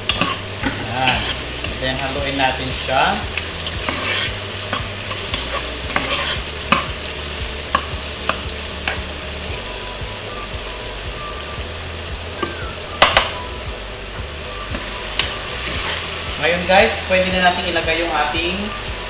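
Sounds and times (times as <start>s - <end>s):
utensil scraping a pot: 0.0s - 1.9s, 3.3s - 6.9s, 14.7s - 16.3s
food sizzling in oil: 0.0s - 19.0s.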